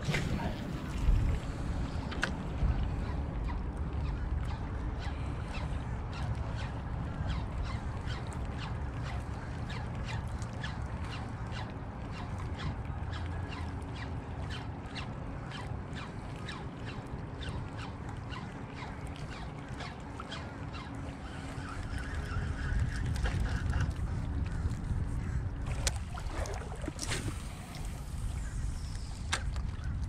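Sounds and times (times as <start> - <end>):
wind rumble on microphone: 0.0 - 8.1, 21.4 - 30.0.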